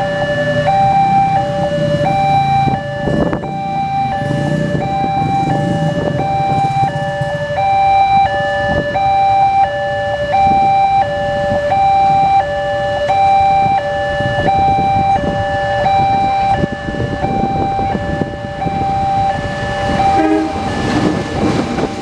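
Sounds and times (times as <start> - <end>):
engines idling: 0.0 - 8.2.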